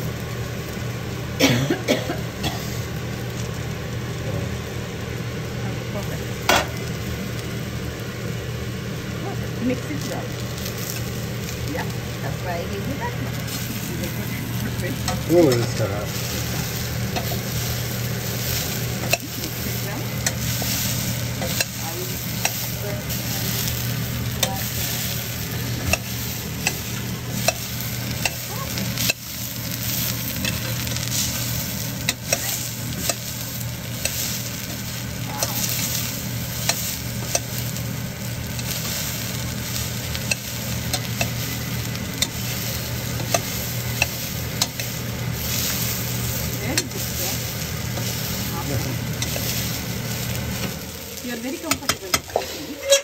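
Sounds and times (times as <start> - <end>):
beans sizzling in a pan: 0.0 - 53.0
metal spoon scraping a pan: 29.9 - 33.3, 51.7 - 53.0.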